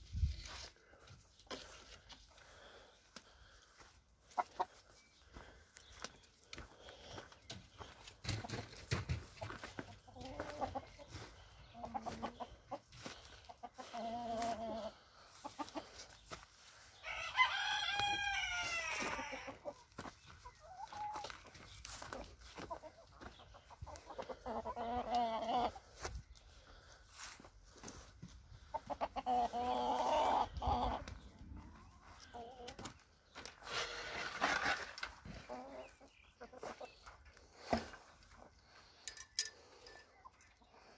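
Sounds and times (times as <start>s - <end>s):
chickens clucking: 0.1s - 40.9s
rooster crowing: 17.0s - 19.4s.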